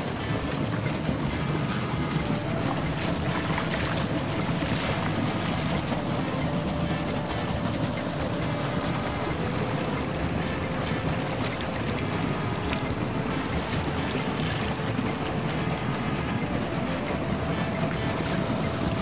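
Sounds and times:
steady rushing rumbling noise: 0:00.0 - 0:19.0
hands splashing water: 0:01.2 - 0:19.0.

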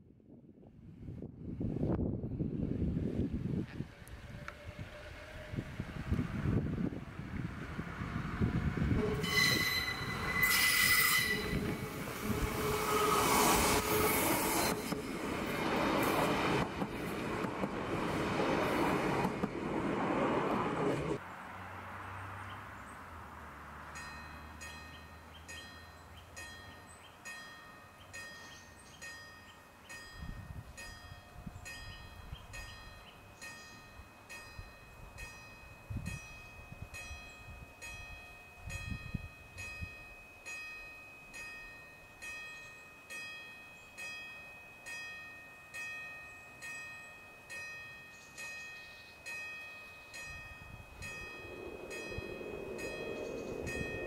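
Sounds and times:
oncoming train: 0:00.1 - 0:54.0
level-crossing warning bell: 0:09.1 - 0:13.4, 0:24.0 - 0:54.0.

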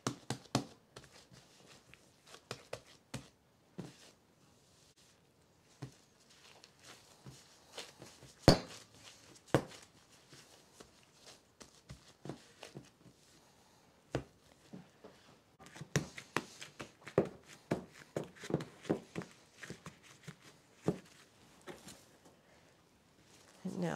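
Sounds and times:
dough slapping on countertop: 0:00.0 - 0:01.4, 0:02.2 - 0:04.0, 0:07.2 - 0:13.0, 0:15.6 - 0:21.2.

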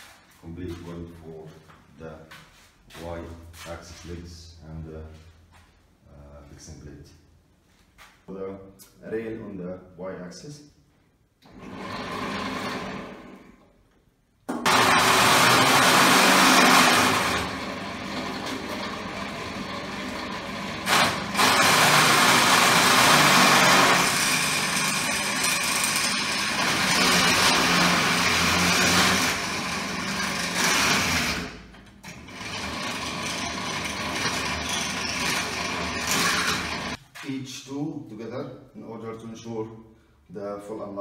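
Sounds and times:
drill press drilling metal: 0:11.5 - 0:13.5, 0:14.6 - 0:37.0.

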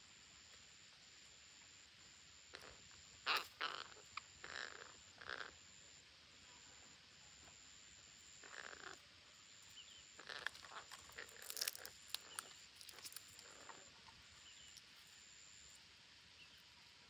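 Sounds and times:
parakeets rasping calls: 0:02.5 - 0:05.5, 0:08.4 - 0:09.0, 0:10.2 - 0:13.8.

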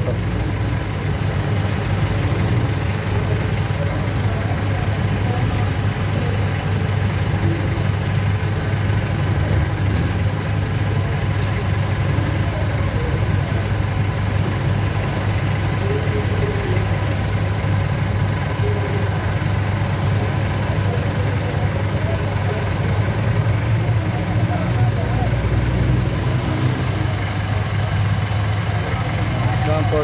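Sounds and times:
diesel engine idling: 0:00.0 - 0:30.0.

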